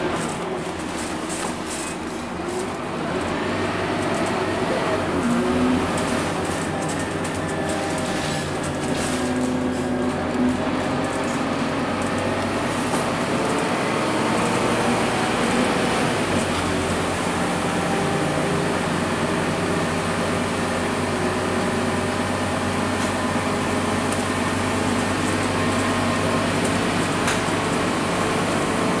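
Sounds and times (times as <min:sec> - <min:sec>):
bus diesel engine running: 0:00.0 - 0:29.0.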